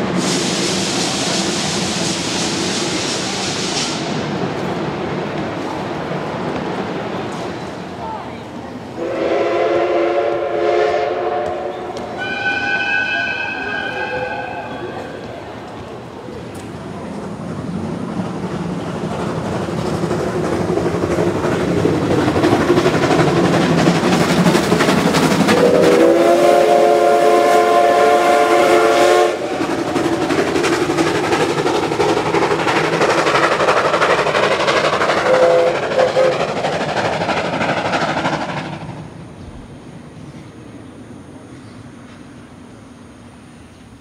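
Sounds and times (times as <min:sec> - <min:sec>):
running steam train: 0:00.0 - 0:44.0
steam whistle blast: 0:09.0 - 0:15.0, 0:25.5 - 0:29.5, 0:35.3 - 0:36.4.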